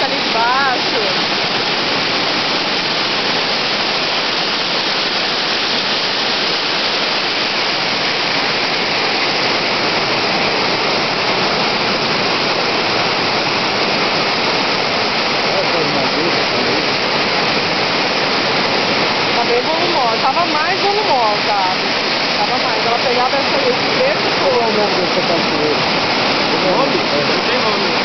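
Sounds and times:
waterfall rushing over rock: 0.0s - 28.0s.

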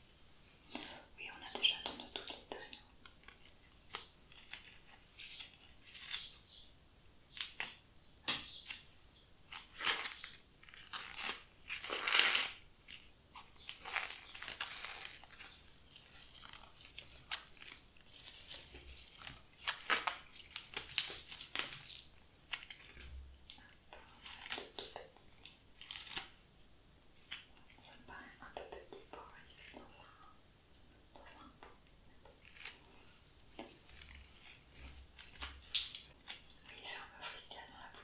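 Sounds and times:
dried stems rustling and crackling: 9.5s - 23.6s, 32.3s - 36.6s.

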